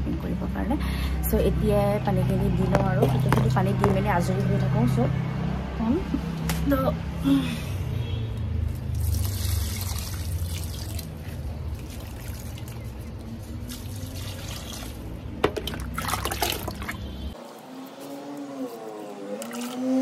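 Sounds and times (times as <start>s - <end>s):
water splashing and trickling: 8.6s - 20.0s.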